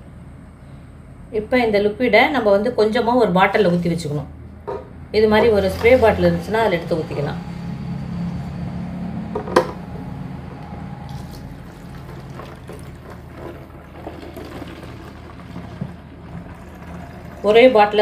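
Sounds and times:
liquid pouring through funnel into bottle: 11.1s - 18.0s.

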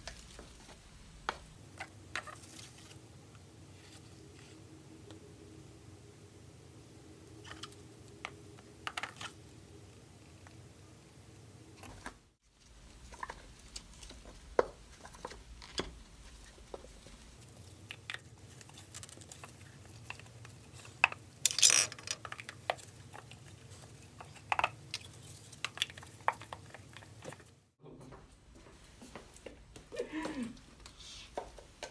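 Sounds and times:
low steady hum: 0.0s - 21.6s
plastic cups clicking and knocking: 17.7s - 27.5s.

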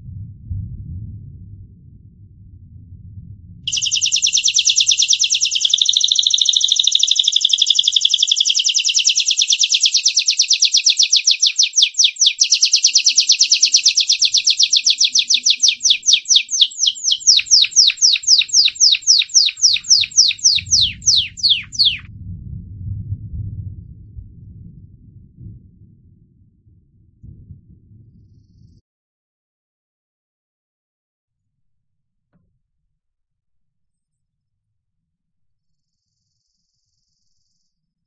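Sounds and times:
canary trilling: 3.7s - 22.1s.

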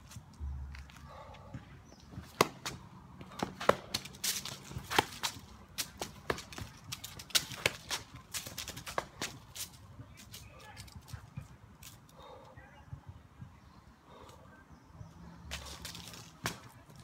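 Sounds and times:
footsteps on concrete: 0.0s - 12.1s.

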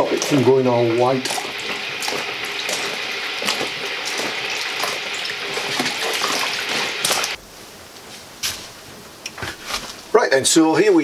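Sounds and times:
water sloshing in a plastic bowl: 0.0s - 7.4s.

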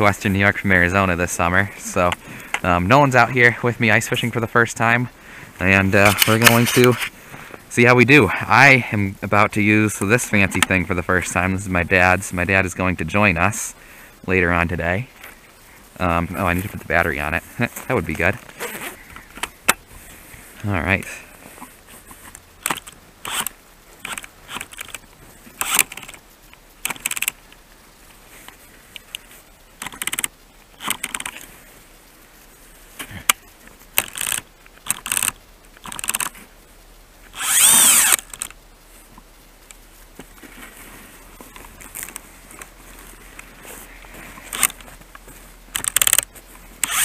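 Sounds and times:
drill motor spinning up: 23.3s - 23.5s, 37.4s - 38.4s.

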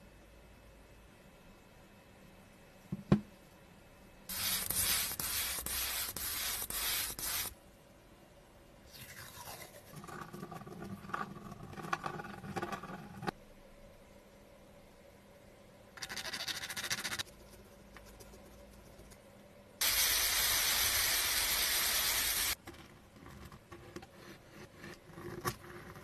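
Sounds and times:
pen scratching through stencil: 4.3s - 7.5s
spray paint hissing: 4.3s - 7.5s, 19.8s - 22.6s.

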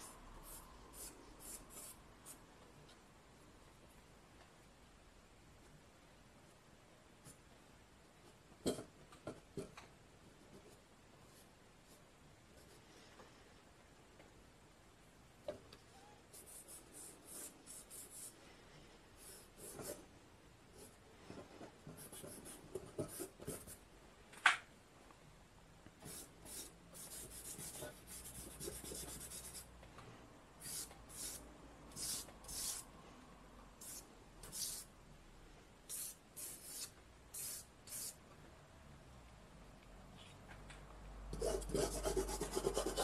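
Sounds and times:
charcoal scratching on paper: 26.0s - 29.7s, 30.6s - 32.8s, 33.8s - 34.9s, 35.9s - 38.2s, 41.4s - 43.0s.

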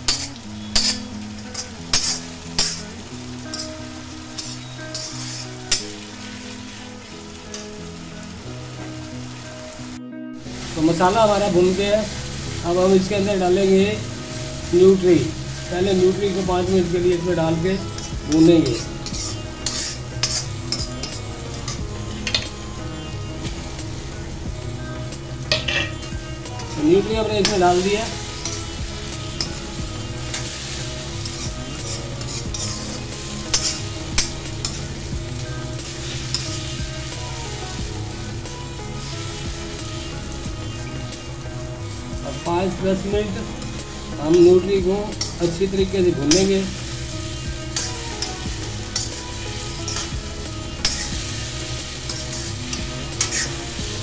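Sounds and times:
food sizzling in pan: 0.0s - 54.0s
spoon clinking against iron: 0.1s - 2.8s, 3.5s - 3.8s, 4.4s - 5.9s, 18.0s - 22.5s, 25.5s - 26.1s, 30.3s - 34.8s, 49.9s - 50.1s, 50.8s - 51.3s
spoon scraping pan: 0.1s - 2.8s, 3.5s - 6.1s, 17.8s - 22.5s, 30.3s - 35.0s, 46.2s - 53.7s.

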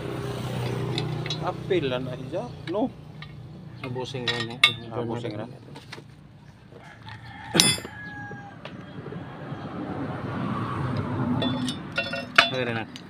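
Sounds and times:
wrench clinking on metal: 0.6s - 1.7s, 2.6s - 5.4s, 7.5s - 8.0s, 11.4s - 13.0s.

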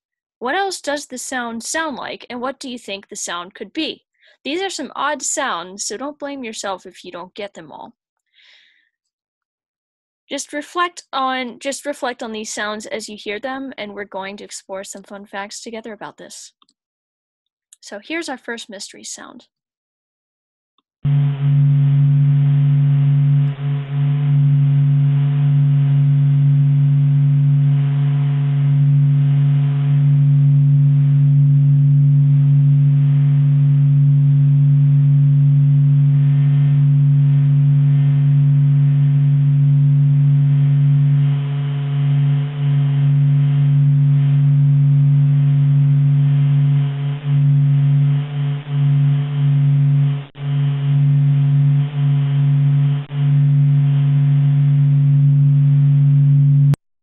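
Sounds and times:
low hum with higher tones: 21.1s - 56.8s.

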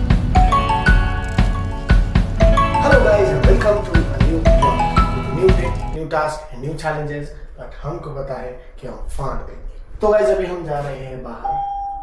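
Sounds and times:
steady drum beat: 0.0s - 6.0s
melody of short notes: 0.3s - 6.0s.

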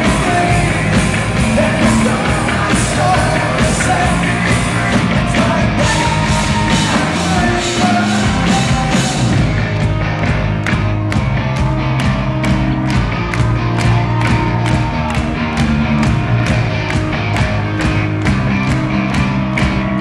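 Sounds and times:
man singing lead vocals: 0.0s - 9.8s
drum kit: 0.0s - 20.0s
live rock band: 0.0s - 20.0s.

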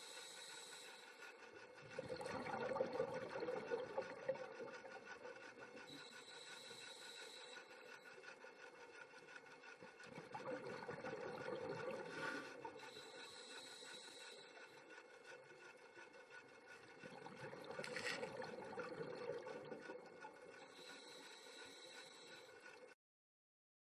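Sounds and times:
scratchy underwater noise: 10.1s - 13.8s, 16.2s - 21.9s.

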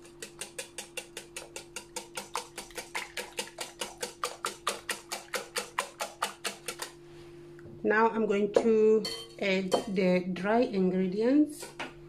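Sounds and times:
whisk clinking against glass bowl: 0.0s - 6.9s.

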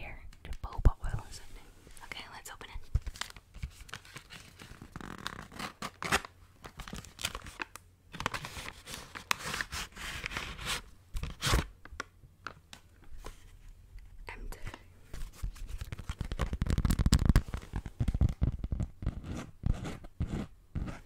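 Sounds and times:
paper and wrap crinkling: 3.0s - 11.7s, 15.2s - 18.6s.

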